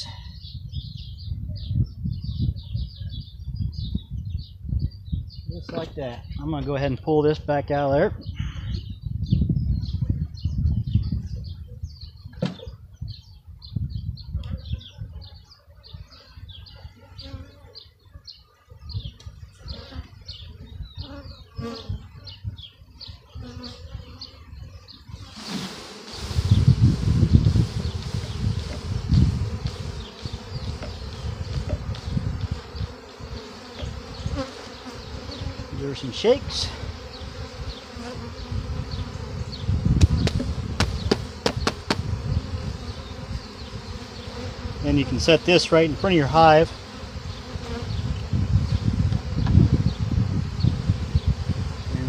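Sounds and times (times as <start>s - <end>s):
honeybees buzzing: 14.2s - 52.0s.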